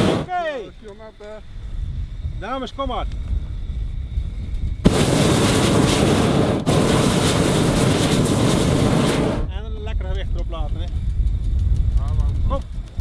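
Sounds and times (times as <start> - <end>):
propane burner rushing hiss: 0.0 - 9.6.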